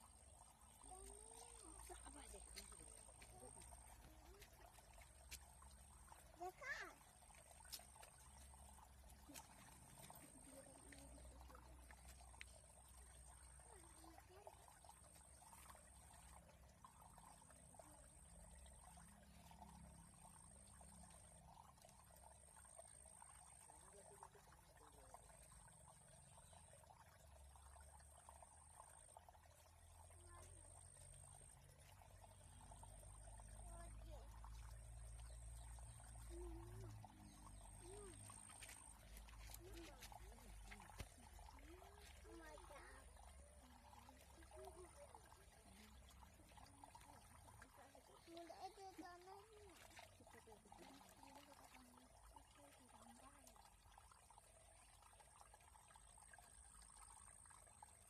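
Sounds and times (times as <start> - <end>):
faint trickle of water: 0.0 - 58.0
faint wavering voice-like sound: 36.1 - 40.8.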